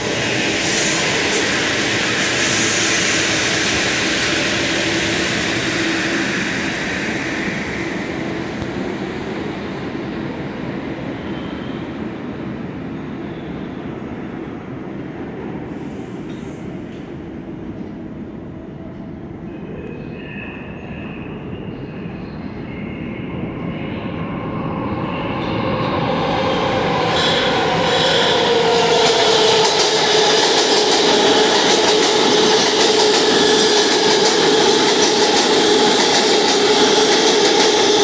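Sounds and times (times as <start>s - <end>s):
subway train rushing past: 0.0s - 38.0s
train wheel squeals: 11.1s - 12.0s.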